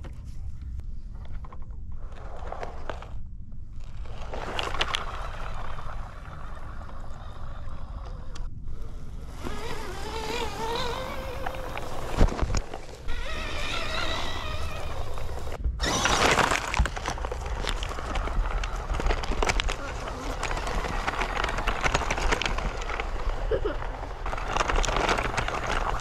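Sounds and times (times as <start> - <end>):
electric motor whining: 8.0 - 17.1.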